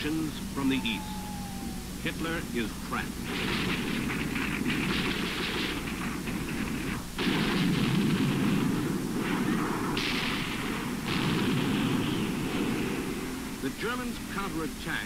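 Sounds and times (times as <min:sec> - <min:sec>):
gunfire and shellfire: 0:03.2 - 0:13.3.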